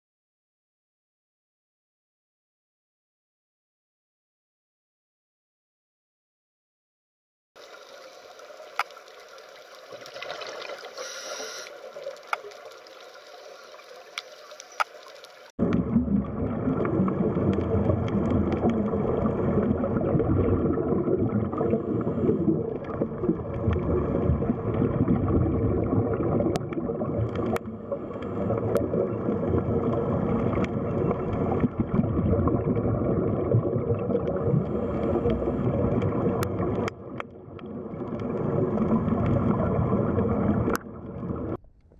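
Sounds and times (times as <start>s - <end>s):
churning water underwater: 7.6s - 41.9s
faint clicks: 7.7s - 15.5s.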